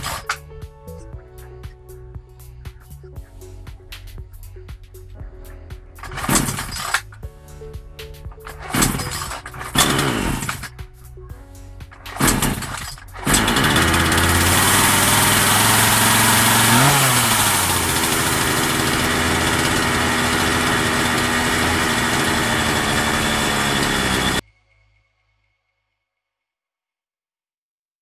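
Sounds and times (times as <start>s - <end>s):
chainsaw engine running: 0.0s - 0.3s, 6.0s - 7.1s, 8.4s - 10.8s, 12.1s - 24.4s.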